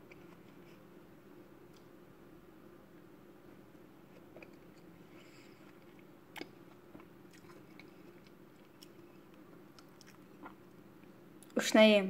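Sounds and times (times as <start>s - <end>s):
chewing crisp apple: 4.1s - 10.6s.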